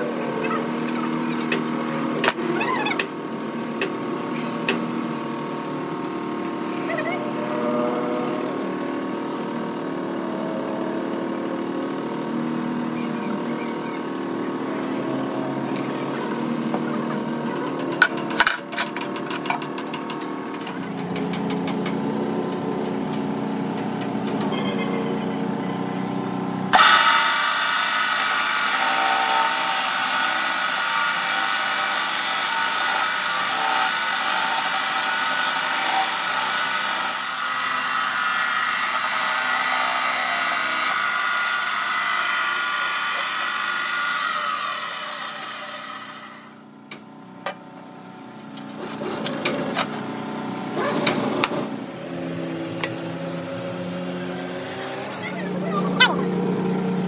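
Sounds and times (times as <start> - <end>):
cut-off saw grinding steel: 6.5 - 11.2, 22.2 - 47.2.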